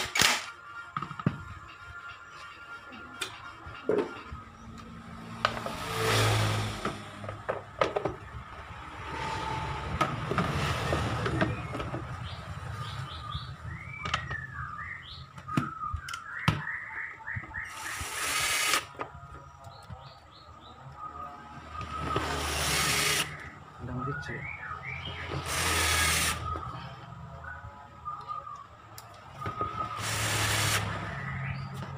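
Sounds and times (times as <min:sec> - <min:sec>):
birds chirping: 0:10.8 - 0:31.9.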